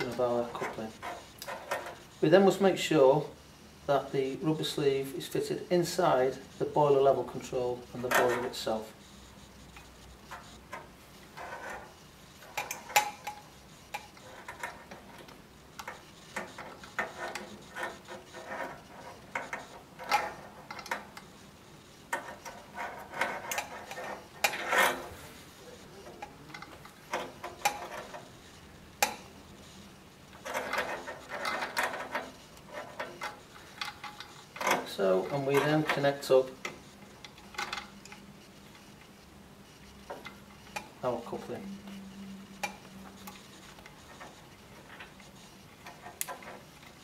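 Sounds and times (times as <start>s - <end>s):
hands rubbing small parts: 9.7s - 21.3s.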